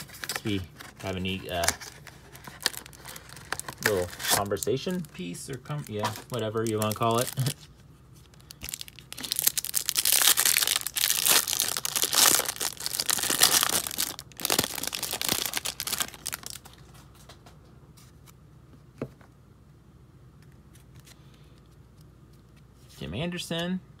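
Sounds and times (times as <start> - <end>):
plastic wrapping tearing and crinkling: 0.0 - 16.8.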